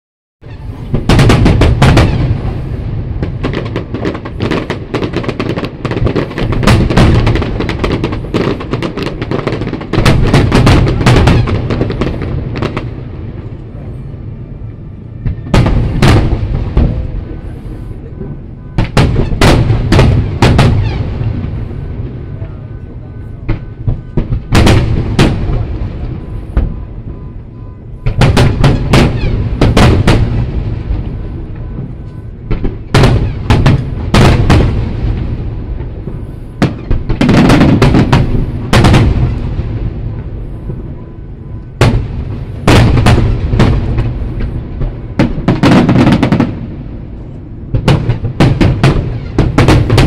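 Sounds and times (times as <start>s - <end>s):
fireworks bursting with bangs and crackles: 0.4s - 50.0s.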